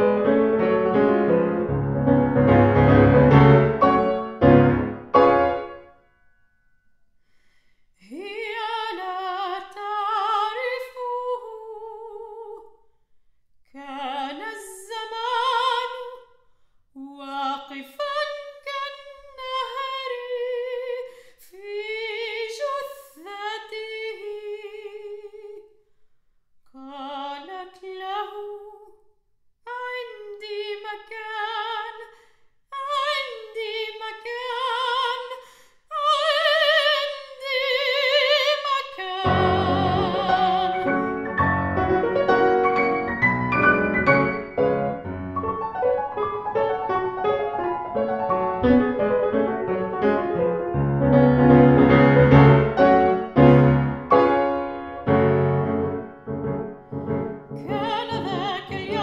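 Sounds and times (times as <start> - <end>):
piano chords: 0.0 - 6.0, 39.2 - 59.0
soprano voice singing: 8.0 - 12.8, 13.7 - 16.3, 17.0 - 25.7, 26.7 - 29.0, 29.7 - 41.5, 56.9 - 59.0.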